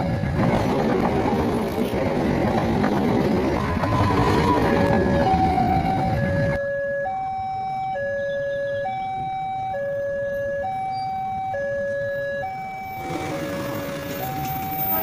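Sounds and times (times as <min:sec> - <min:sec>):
train rumbling past: 0:00.0 - 0:06.4, 0:13.0 - 0:15.0
two-tone level crossing alarm: 0:03.5 - 0:15.0.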